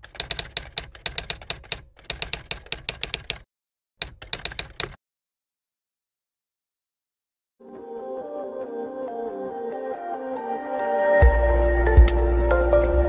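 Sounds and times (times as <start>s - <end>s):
typewriter keystrokes clacking: 0.0s - 3.4s, 4.0s - 5.0s.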